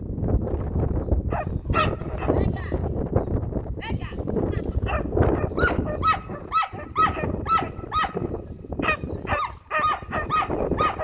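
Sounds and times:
dog barking: 1.3s - 2.4s, 4.8s - 11.0s.

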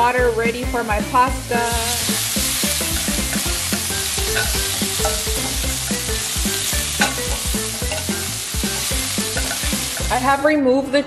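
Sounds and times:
chicken sizzling in frying pan: 0.2s - 10.4s
tongs stirring in pan: 1.7s - 10.2s.

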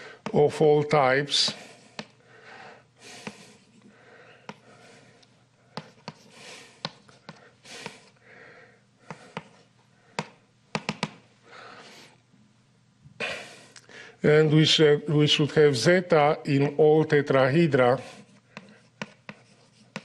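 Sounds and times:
chalk tapping on blackboard: 4.4s - 4.6s, 5.7s - 8.0s, 9.0s - 9.6s, 10.2s - 11.2s, 18.2s - 20.0s
chalk scraping on blackboard: 5.8s - 8.1s, 17.9s - 20.0s.

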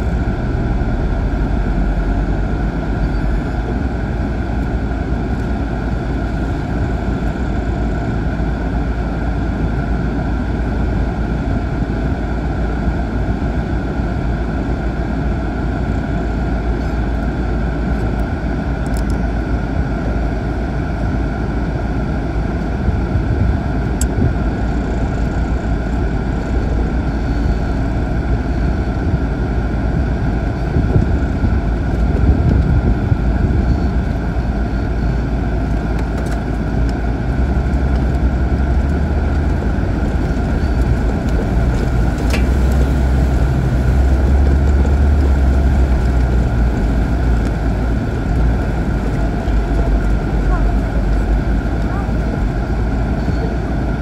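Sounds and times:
diesel engine running in cab: 0.0s - 54.0s.

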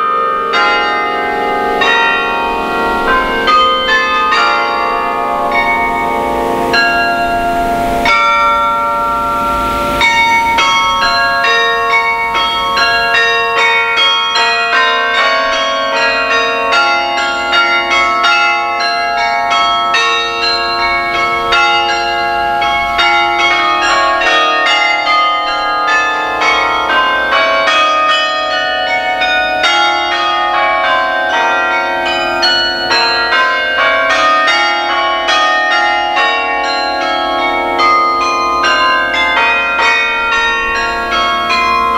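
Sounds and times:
carillon bells playing a tune: 0.0s - 41.9s.

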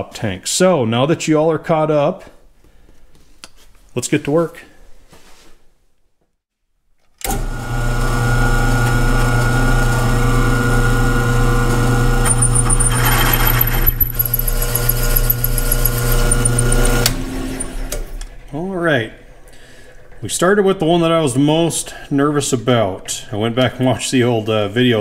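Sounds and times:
drill press drilling into metal: 11.6s - 18.3s
drill bit squealing: 12.2s - 18.0s.

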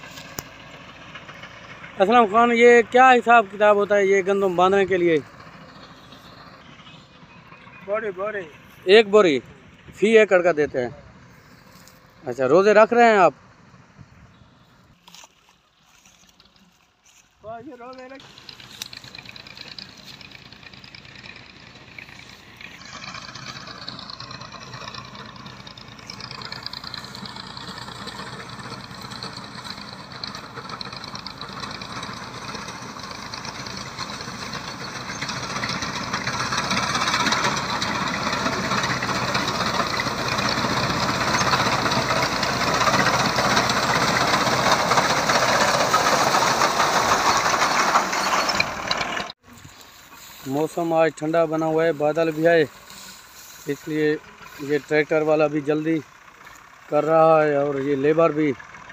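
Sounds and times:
tractor engine under load: 0.0s - 58.9s
reaper cutting wheat: 15.0s - 20.7s, 21.9s - 57.1s.

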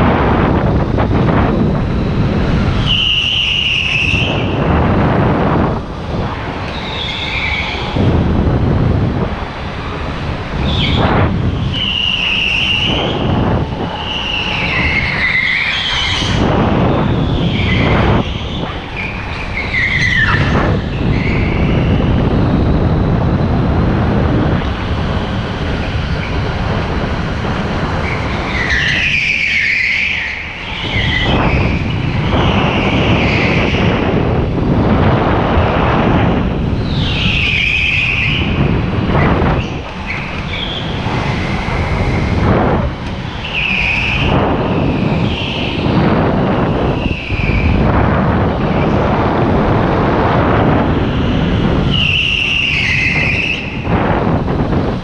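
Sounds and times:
tyres squealing: 6.6s - 8.0s, 11.6s - 16.4s, 17.0s - 21.9s, 27.9s - 33.9s, 39.6s - 42.3s, 43.2s - 47.8s, 51.1s - 53.8s.

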